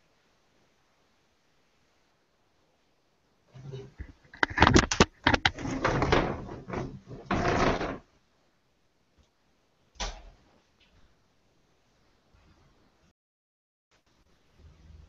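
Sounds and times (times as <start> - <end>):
knocks and rustling: 3.6 - 8.1.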